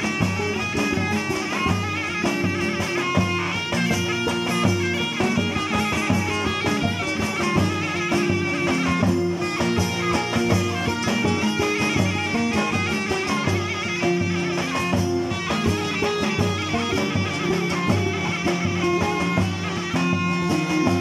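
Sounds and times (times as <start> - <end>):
reed wind instrument melody: 0.0 - 21.0
strummed lutes: 0.0 - 21.0.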